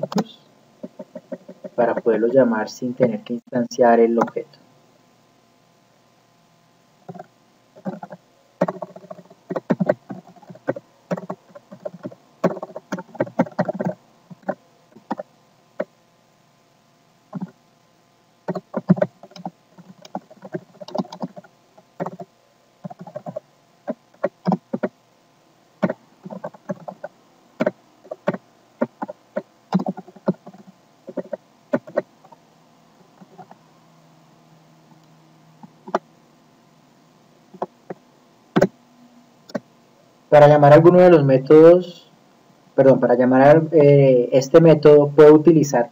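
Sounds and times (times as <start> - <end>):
computer keyboard typing: 0.0 - 2.0, 7.1 - 15.3, 17.3 - 17.5, 18.5 - 24.9, 25.8 - 32.1, 33.2 - 33.6, 37.5 - 38.0.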